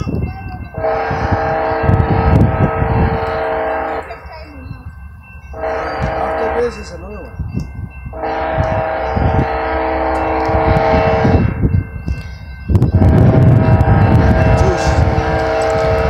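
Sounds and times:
low train rumble: 0.0 - 16.0
locomotive air horn: 0.8 - 4.2, 5.6 - 6.9, 8.1 - 11.5, 13.0 - 16.0.

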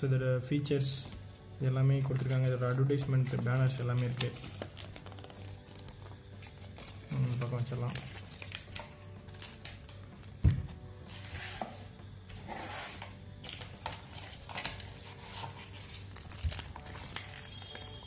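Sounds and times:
plastic and paper crinkling: 1.9 - 10.3, 13.4 - 18.0.

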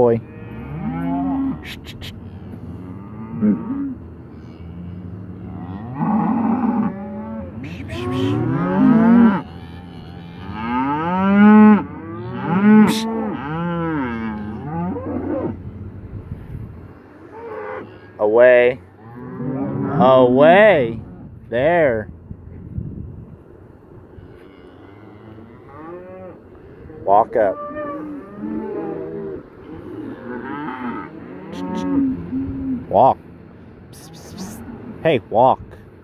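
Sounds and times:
cattle mooing: 0.0 - 15.6, 19.0 - 21.2, 24.2 - 32.8, 34.0 - 35.0.

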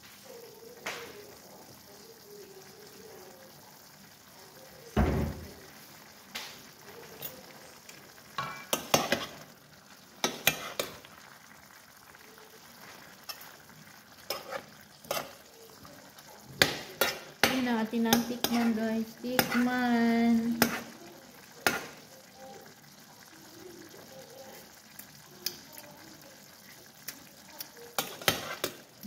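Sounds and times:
food sizzling in a frying pan: 0.0 - 29.0
metal spoon scraping a pan: 8.4 - 9.5, 10.2 - 11.1, 12.8 - 15.6, 16.6 - 19.8, 20.4 - 21.0, 21.6 - 22.1, 28.0 - 28.9.

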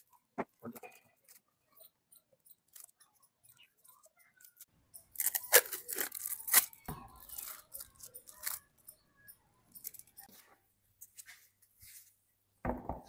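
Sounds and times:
tape peeling with crackling rips: 5.2 - 8.6.

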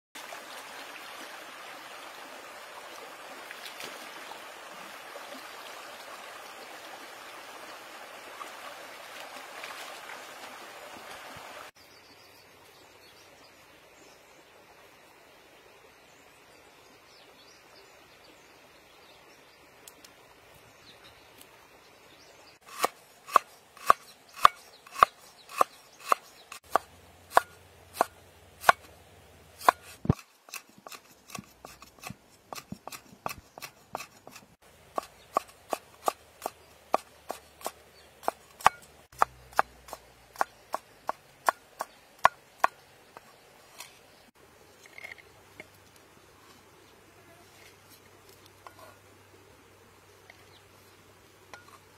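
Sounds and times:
cleaver chopping on wooden board: 22.7 - 28.9, 29.6 - 34.4
faint steady hiss: 37.8 - 51.9.

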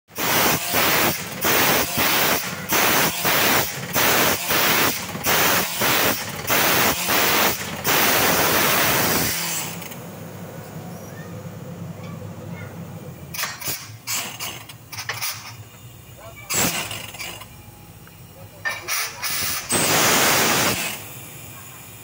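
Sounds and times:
drilling rig rushing bursts: 0.1 - 10.0, 16.4 - 17.5, 18.7 - 21.6.

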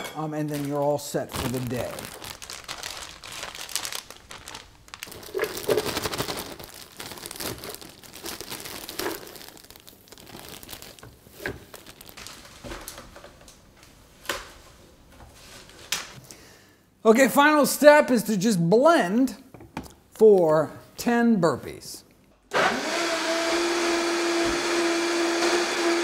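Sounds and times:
plastic bag crinkling: 0.4 - 13.2.

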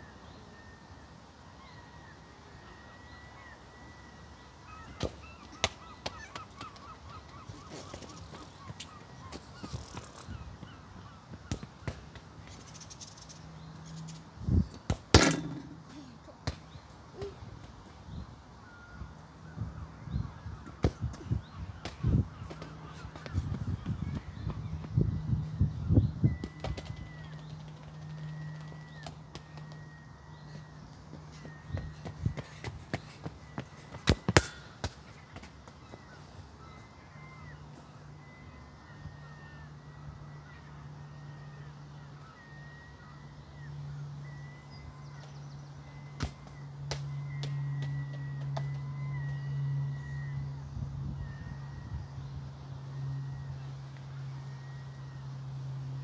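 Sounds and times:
faint bird calls: 0.0 - 14.2, 15.4 - 25.0
football thudding on rubber surface: 34.0 - 35.5.

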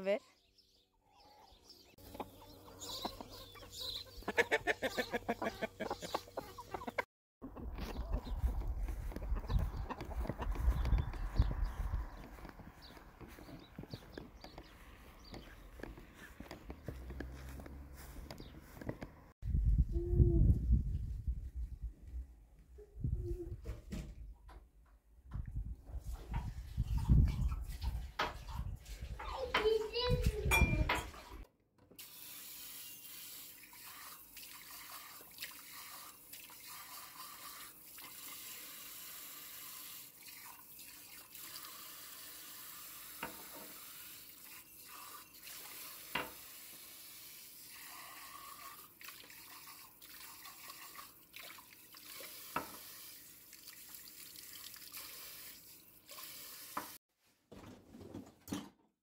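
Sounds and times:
dishes clinking: 30.5 - 31.3.

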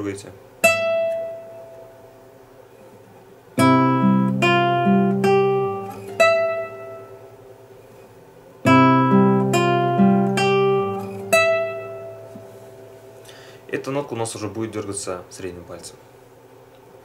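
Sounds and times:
fingerpicked classical guitar: 0.6 - 2.0, 3.6 - 13.3.

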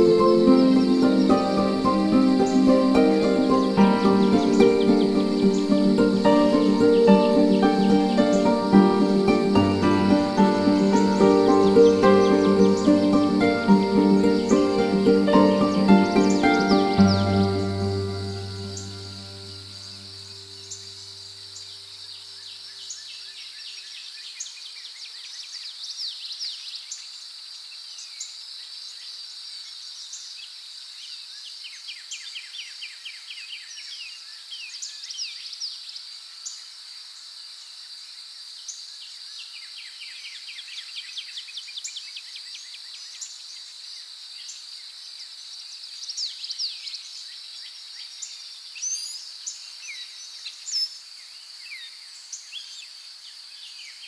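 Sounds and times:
birds chirping and trilling: 0.0 - 21.7
insects droning: 0.0 - 23.4, 35.8 - 54.0.

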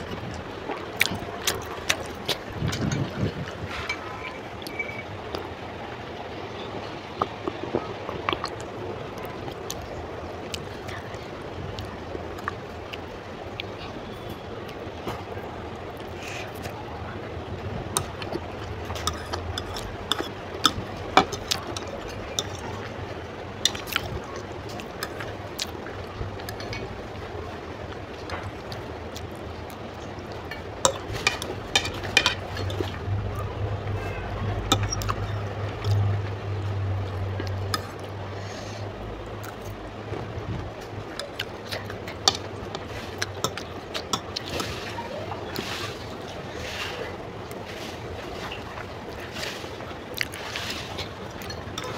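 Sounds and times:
chewing with wet mouth smacks: 0.0 - 3.6, 11.7 - 15.2, 17.9 - 26.9, 34.1 - 40.2, 40.8 - 44.8, 50.1 - 51.9
fork scraping a plate: 18.8 - 22.6
low hum: 30.1 - 41.2.

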